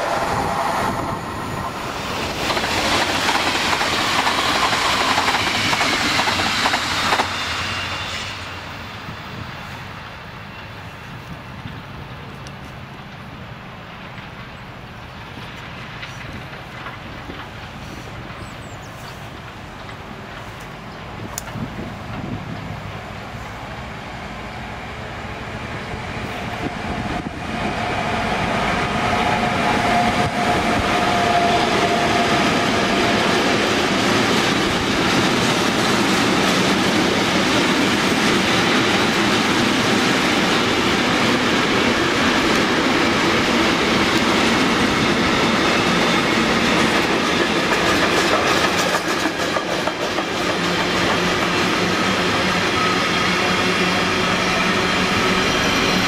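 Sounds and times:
locomotive high whine: 0.0s - 48.7s, 50.0s - 56.0s
freight train passing: 0.0s - 56.0s
wheels clattering on rails: 2.0s - 7.4s, 14.0s - 23.2s, 29.5s - 53.0s.

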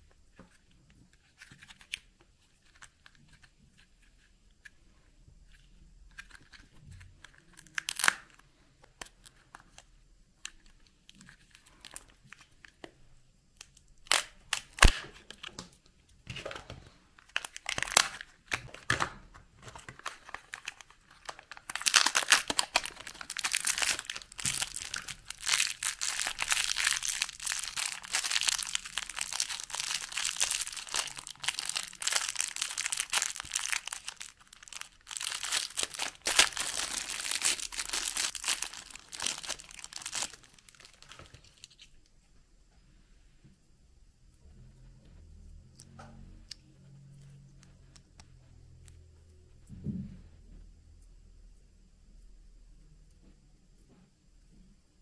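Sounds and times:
wrappers crinkling and tearing: 7.4s - 8.3s, 14.0s - 15.6s, 17.2s - 19.0s, 19.6s - 41.8s.

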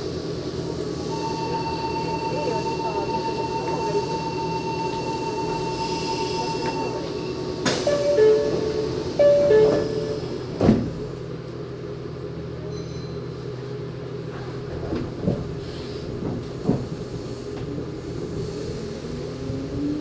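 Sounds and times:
electric train humming: 0.0s - 12.6s, 13.5s - 20.0s
train clunks: 1.1s - 11.3s, 14.3s - 18.0s.

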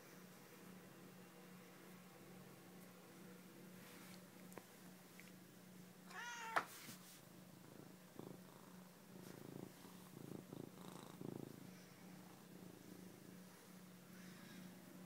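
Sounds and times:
cat meowing: 6.1s - 6.7s
cat purring: 7.3s - 14.7s.

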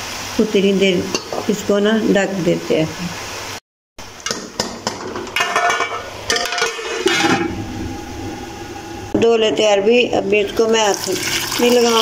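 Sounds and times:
metal lid clinking on pot: 4.9s - 7.5s.

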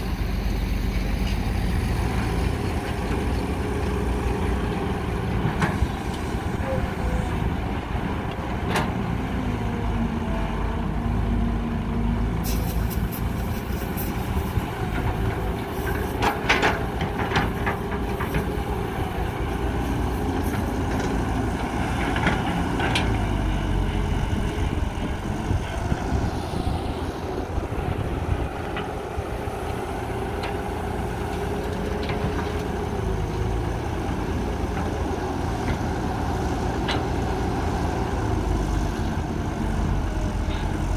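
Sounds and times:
excavator diesel engine droning: 0.0s - 40.9s.

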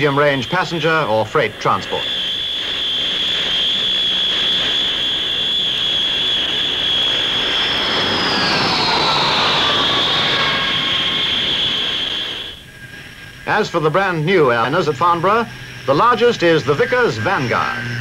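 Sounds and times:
whine falling in pitch: 0.0s - 13.8s
turboprop engines whining: 0.0s - 18.0s.

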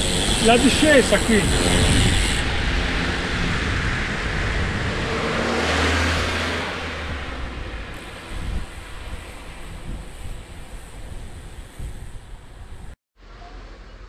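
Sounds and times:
car passing by: 0.7s - 8.3s.

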